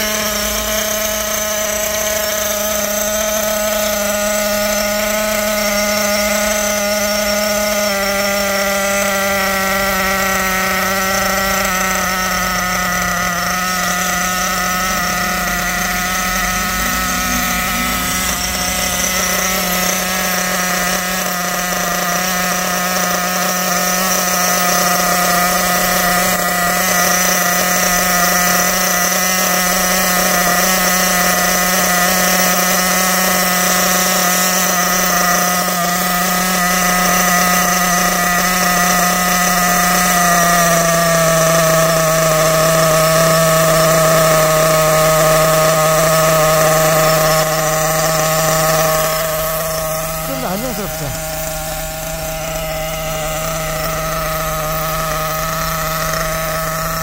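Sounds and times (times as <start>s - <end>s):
small engine idling high buzz: 0.0s - 57.0s.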